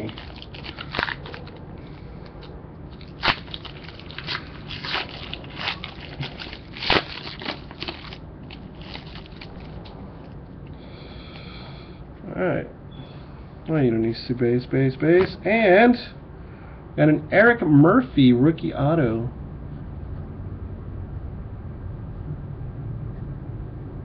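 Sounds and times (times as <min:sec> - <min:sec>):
foil wrapper crinkling: 0:00.0 - 0:02.4, 0:03.0 - 0:09.9.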